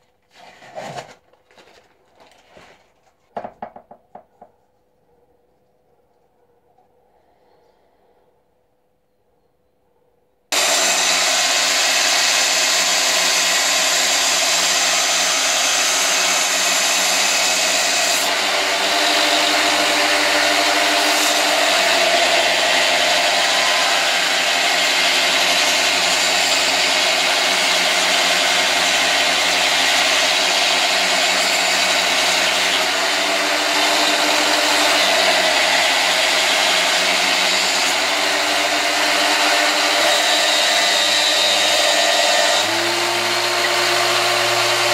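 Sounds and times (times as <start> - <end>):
belt grinder humming: 10.5 - 44.9.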